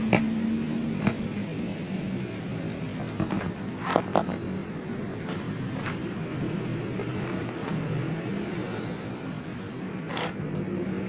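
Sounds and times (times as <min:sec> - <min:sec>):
handling clicks and scrapes: 0:02.7 - 0:04.4, 0:05.2 - 0:06.0, 0:07.0 - 0:08.0, 0:10.0 - 0:10.7.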